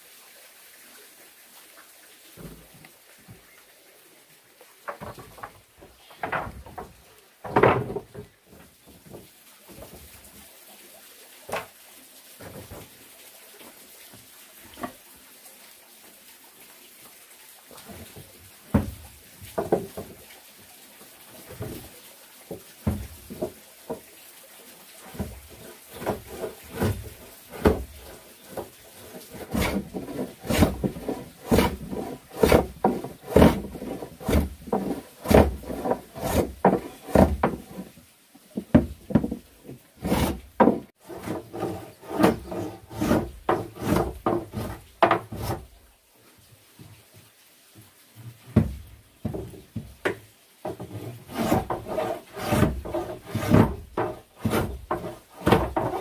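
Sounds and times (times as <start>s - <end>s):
hand rubbing strokes on wood: 50.8s - 56.0s.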